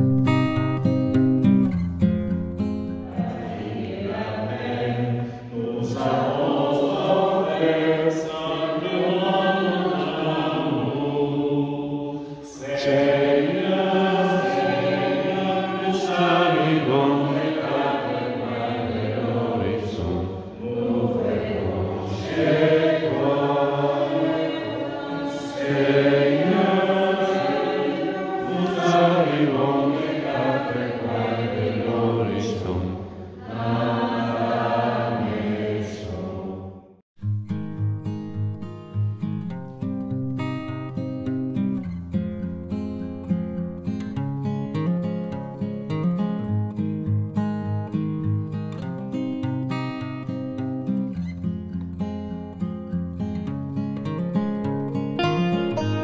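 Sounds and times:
congregation singing a hymn: 3.0 - 37.0.

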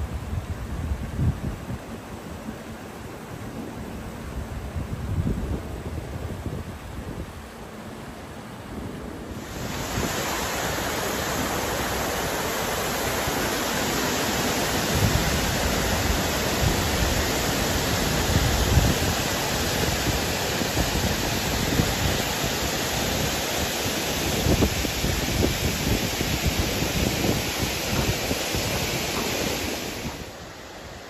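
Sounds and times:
wind buffeting microphone: 0.0 - 2.7, 4.2 - 7.7, 8.7 - 31.0
water rushing over waterfall: 9.3 - 31.0.

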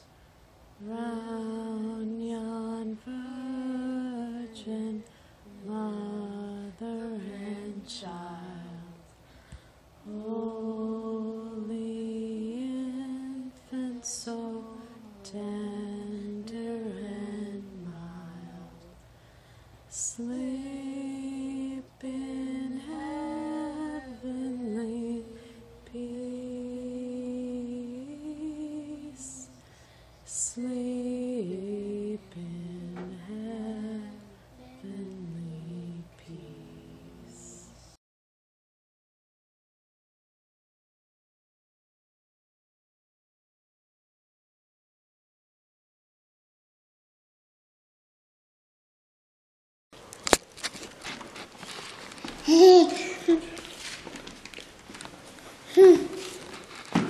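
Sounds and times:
boys singing a carol: 20.2 - 29.2.

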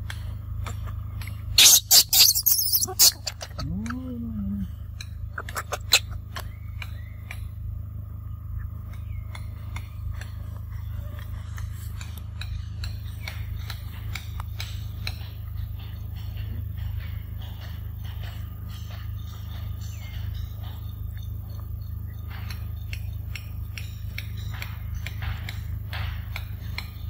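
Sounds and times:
steady low rumble: 2.4 - 27.0.

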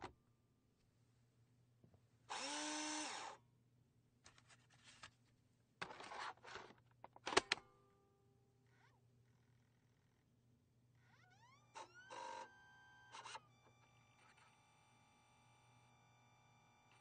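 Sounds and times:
disk drive motor whirring: 11.5 - 17.0.

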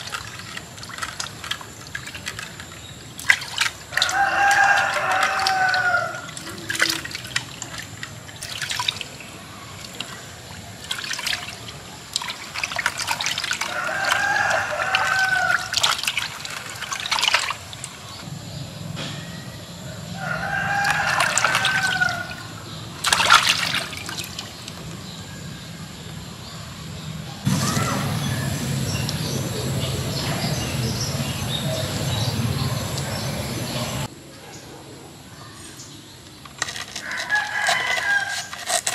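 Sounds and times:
hands splashing water: 0.0 - 18.2, 20.7 - 24.8
rooster crowing: 3.9 - 6.7, 13.6 - 15.8, 19.9 - 22.7, 37.0 - 38.6.

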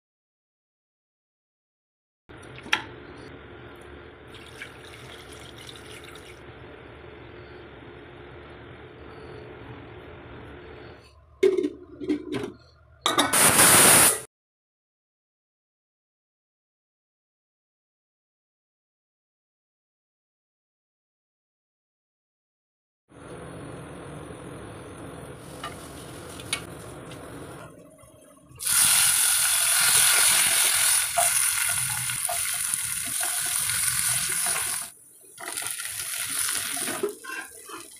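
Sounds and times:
leaves sizzling in hot oil: 25.4 - 27.2, 28.6 - 37.9.

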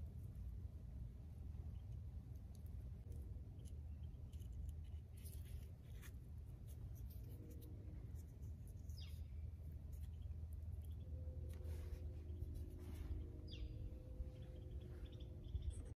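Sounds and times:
low outdoor rumble: 0.0 - 15.9.

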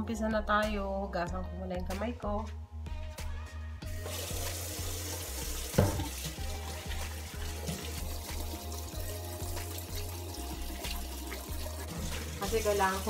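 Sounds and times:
tap running into sink: 4.1 - 8.8, 9.5 - 13.0
hands washing under water: 4.1 - 13.0.

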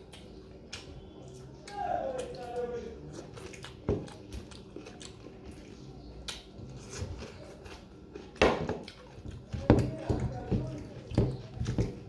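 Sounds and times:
wet chewing: 0.0 - 12.0
fingers mixing rice on steel plate: 8.8 - 12.0.

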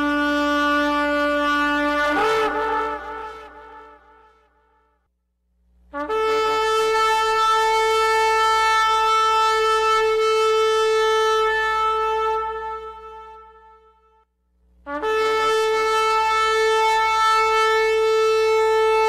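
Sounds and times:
shofar blast: 0.0 - 4.4, 14.9 - 19.0.

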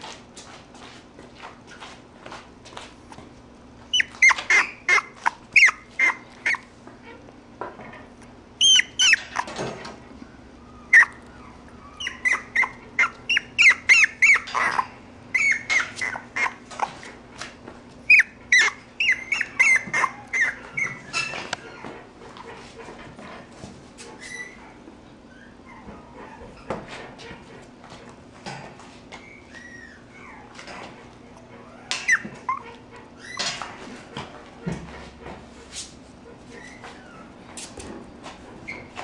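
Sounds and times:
puppy yipping and whining: 3.9 - 7.2, 8.6 - 17.0, 18.0 - 22.0, 24.1 - 27.4, 29.1 - 33.8, 36.5 - 37.4, 38.7 - 39.0.

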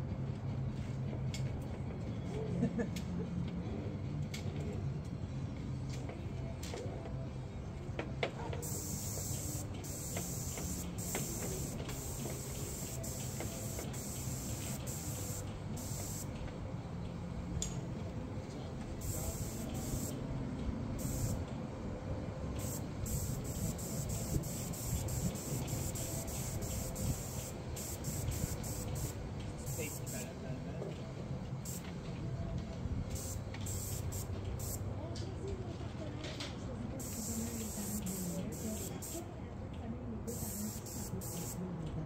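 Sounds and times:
paint sprayer hissing: 8.6 - 16.5, 18.8 - 20.3, 20.9 - 21.5, 22.5 - 30.3, 31.6 - 31.9, 33.1 - 34.8, 37.0 - 39.3, 40.3 - 41.6
steady low hum: 8.7 - 35.1.

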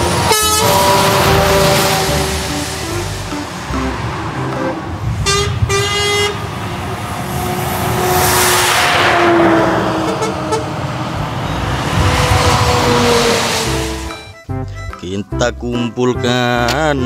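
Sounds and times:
truck horn toot: 0.0 - 6.5, 10.0 - 10.8, 13.0 - 15.0
truck passing by: 0.0 - 14.9.

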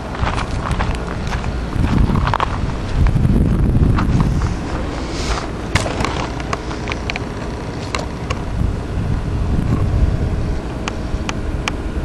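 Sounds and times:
engine rumble: 0.0 - 12.0
wind buffeting microphone: 0.0 - 12.0
sharp clicks and knocks: 5.7 - 8.4.

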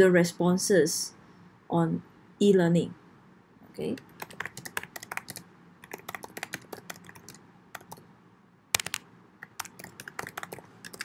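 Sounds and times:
computer keyboard typing: 4.0 - 8.0, 8.8 - 11.0.

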